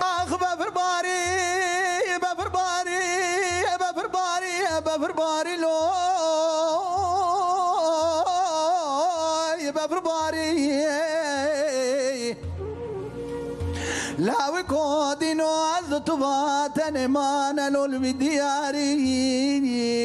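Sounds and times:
man singing with vibrato: 0.0s - 20.0s
low beat: 12.3s - 17.3s.

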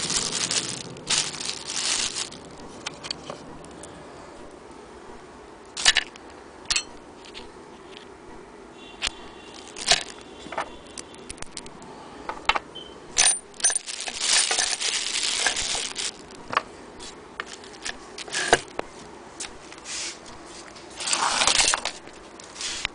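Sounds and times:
plastic bag crinkling: 0.0s - 3.2s, 9.5s - 11.7s, 13.5s - 16.6s, 20.9s - 22.8s
metal parts clinking on wood: 6.7s - 6.9s, 13.2s - 15.7s.

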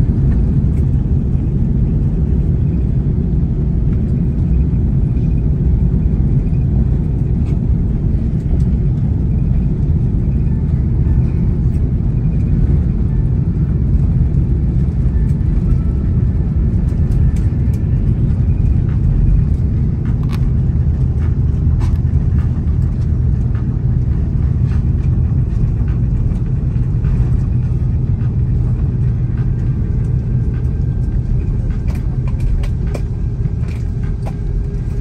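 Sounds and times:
engine and tyre rumble: 0.0s - 35.0s
sharp clicks in cabin: 29.6s - 35.0s.

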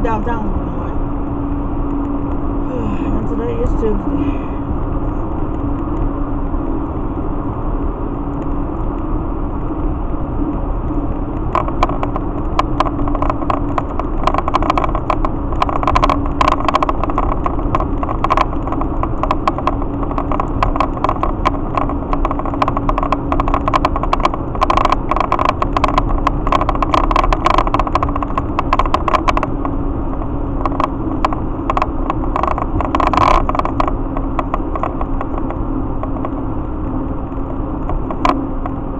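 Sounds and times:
vehicle cabin road drone: 0.0s - 38.9s
rapid irregular clicking: 10.8s - 38.9s.

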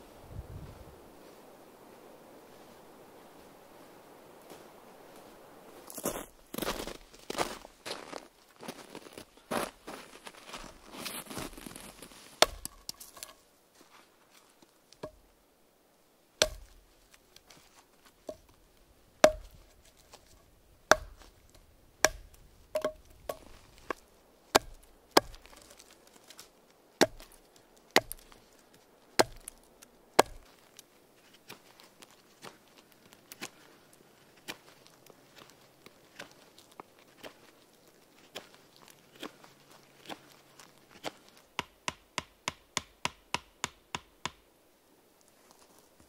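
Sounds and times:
knife chopping into a log: 12.4s - 12.8s, 16.4s - 16.8s, 19.2s - 19.6s, 20.9s - 21.3s, 22.0s - 23.6s, 24.6s - 25.6s, 27.0s - 27.4s, 28.0s - 28.2s, 29.2s - 29.6s, 30.2s - 30.5s.

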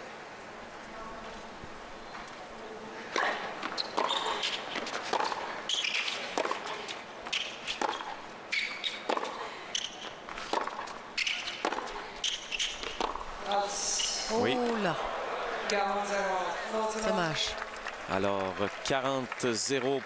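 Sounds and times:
tennis ball hit by racquets: 3.1s - 13.3s
shoe squeaks on court: 3.6s - 6.3s, 7.3s - 10.6s, 11.2s - 13.1s.

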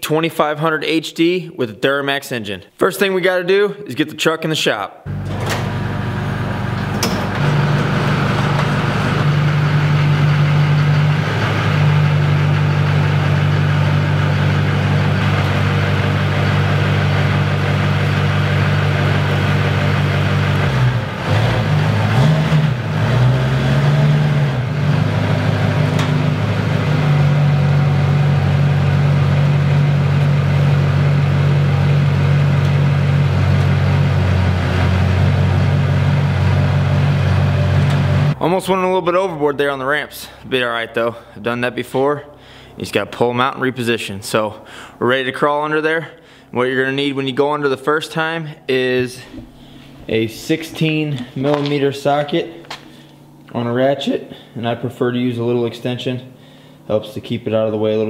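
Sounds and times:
diesel engine idling: 5.1s - 38.4s.

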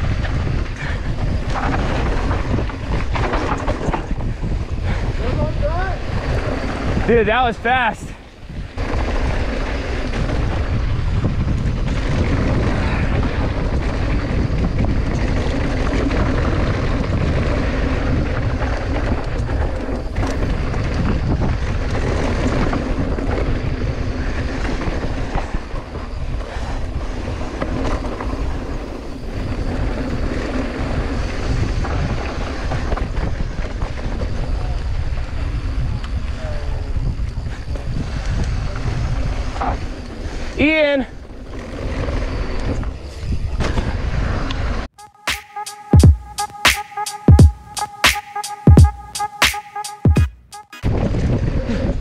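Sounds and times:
bike rattling: 0.0s - 7.0s, 8.4s - 34.5s
tyres rolling on loose dirt: 0.0s - 7.0s, 8.6s - 34.9s
wind over microphone: 0.0s - 44.9s, 50.8s - 52.0s.

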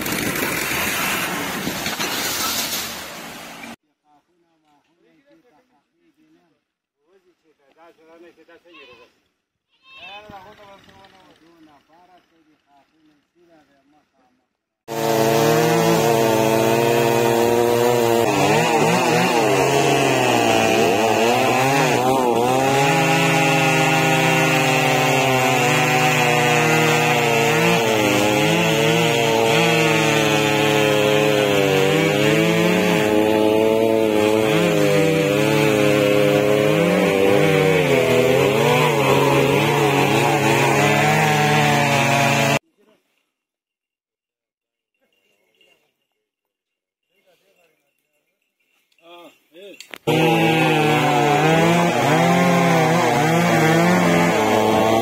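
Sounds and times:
chainsaw cutting wood: 0.0s - 2.9s, 14.9s - 42.6s, 49.9s - 55.0s.

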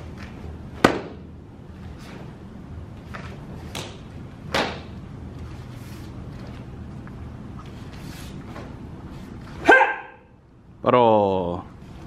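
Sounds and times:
bare feet landing on foam mats: 0.2s - 1.3s, 3.1s - 5.0s
uniform cracking on strikes: 0.8s - 1.2s, 3.7s - 5.0s.

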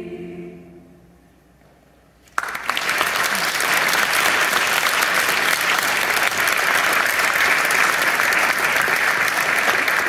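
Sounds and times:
audience applauding: 2.3s - 10.0s.

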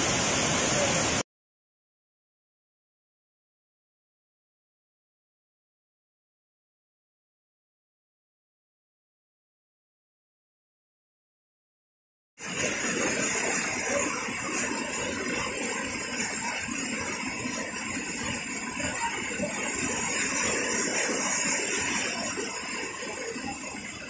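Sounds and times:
waterfall rushing: 0.0s - 1.2s, 12.4s - 24.0s.

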